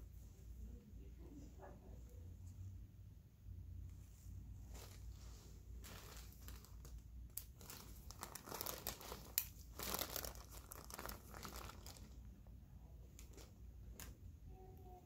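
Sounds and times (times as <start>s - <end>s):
gauze crinkling and rustling: 4.0s - 14.3s.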